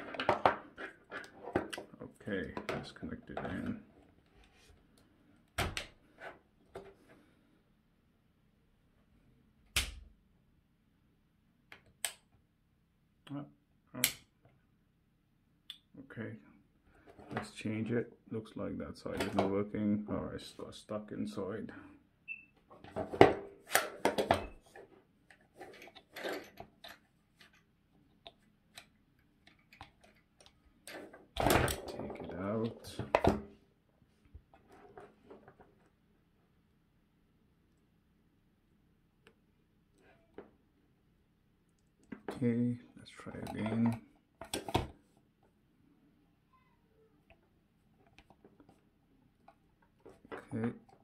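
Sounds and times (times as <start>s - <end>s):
handling knocks and clicks: 43.2s - 45.0s.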